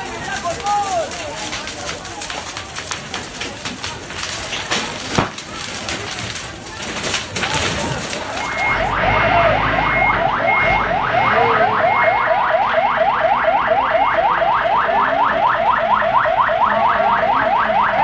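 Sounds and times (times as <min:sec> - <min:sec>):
fire engine siren yelping: 0:05.6 - 0:18.0.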